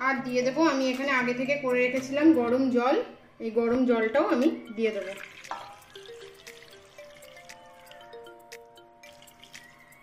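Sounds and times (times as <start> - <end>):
soft background music: 0.0 - 10.0
water splashing and dripping: 4.9 - 10.0.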